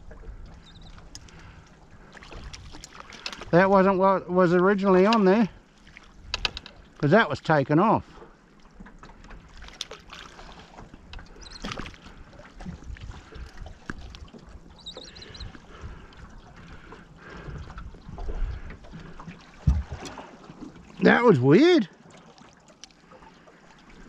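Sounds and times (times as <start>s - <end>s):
waves lapping against boat hull: 0.0s - 24.0s
fishing gear knocks and clicks: 2.6s - 3.5s, 6.3s - 6.8s
wind on microphone: 19.6s - 20.2s.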